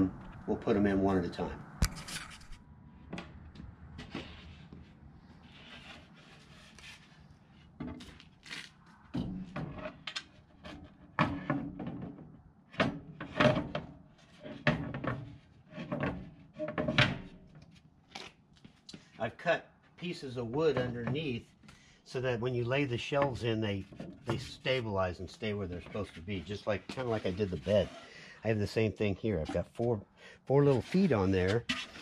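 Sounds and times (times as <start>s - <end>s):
wood panels scraping and knocking: 4.0s - 17.4s, 20.4s - 21.4s, 23.2s - 29.9s, 30.6s - 32.0s.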